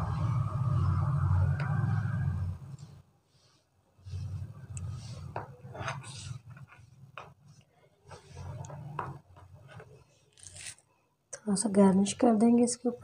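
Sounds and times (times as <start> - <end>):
low hum: 0.0 - 3.0.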